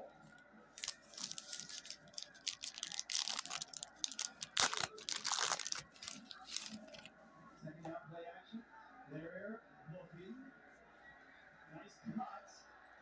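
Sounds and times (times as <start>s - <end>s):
wax paper wrapper crinkling: 0.8s - 7.1s.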